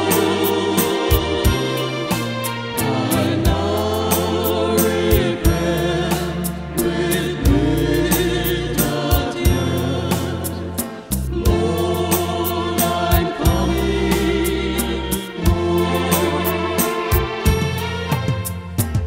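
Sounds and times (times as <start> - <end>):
choir singing a hymn: 0.0 - 18.3
regular beat: 0.0 - 19.0
sustained bass notes: 0.0 - 19.0.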